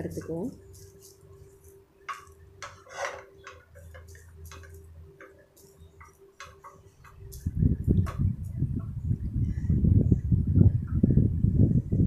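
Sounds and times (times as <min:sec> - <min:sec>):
faint steady hum: 0:00.0 - 0:12.0
spatula scraping metal pan: 0:02.1 - 0:04.8.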